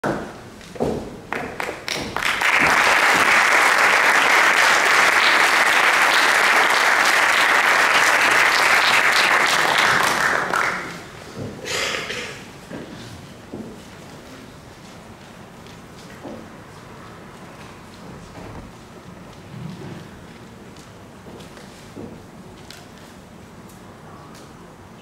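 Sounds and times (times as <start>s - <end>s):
audience applauding: 1.3s - 11.2s.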